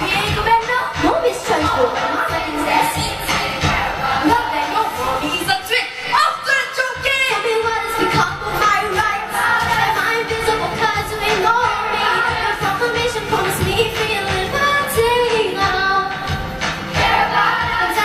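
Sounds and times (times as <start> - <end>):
choir singing in unison: 1.6 - 6.2, 7.9 - 13.5, 16.6 - 18.0.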